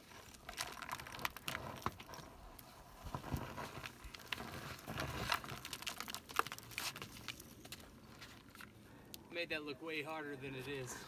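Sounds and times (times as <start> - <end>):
grit clicks: 0.0 - 9.2
shoes scraping on gritty rock: 3.0 - 8.4.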